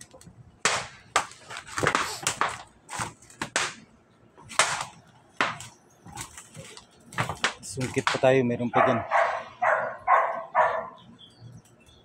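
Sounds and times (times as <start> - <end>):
knocks and snaps on iron roof: 0.0 - 3.8, 4.4 - 8.3.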